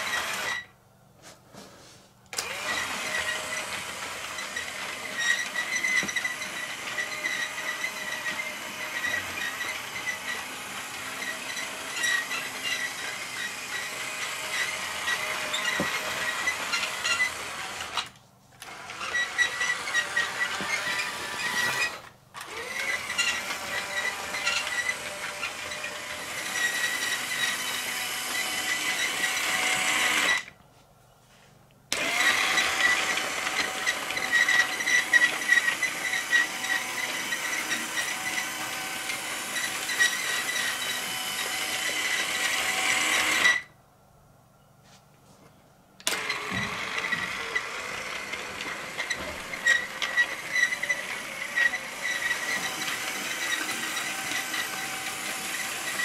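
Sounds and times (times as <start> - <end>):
toy train motor whirring: 0.0 - 0.7, 2.3 - 30.5, 31.9 - 43.7, 46.0 - 56.0
plastic wheels rattling on track: 46.1 - 56.0.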